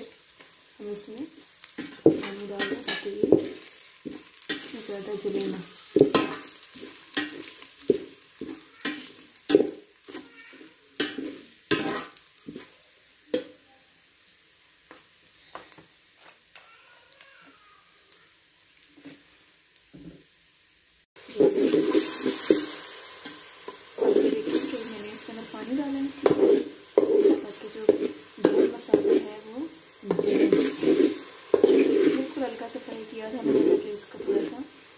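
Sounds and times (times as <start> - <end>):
onions frying in oil: 0.0 - 34.9
water sizzling in hot pot: 0.0 - 34.9
metal spatula scraping pot: 1.8 - 12.8, 21.2 - 34.7.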